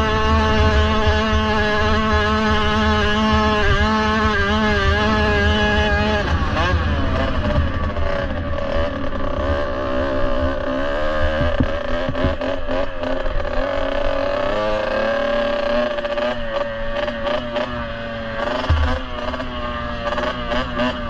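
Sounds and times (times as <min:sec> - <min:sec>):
two-stroke dirt bike engine: 0:00.0 - 0:21.0
sharp knocks: 0:18.6 - 0:19.5.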